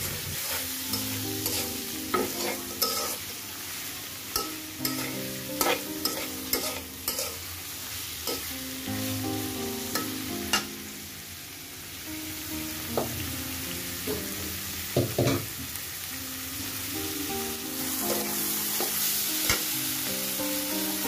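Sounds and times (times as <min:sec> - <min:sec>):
metal spatula scraping wok: 0:00.0 - 0:07.5
prawns sizzling in hot oil: 0:00.0 - 0:21.0.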